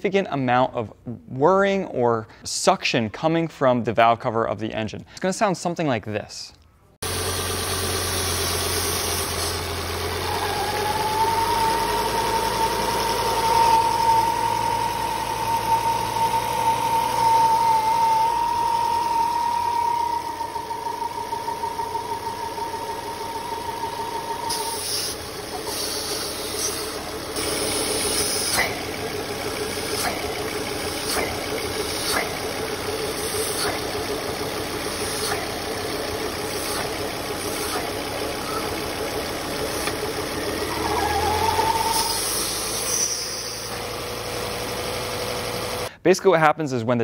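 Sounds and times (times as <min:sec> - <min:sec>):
car engine idling: 0:07.0 - 0:45.9
high whistle from engine: 0:10.2 - 0:28.8, 0:39.7 - 0:43.8.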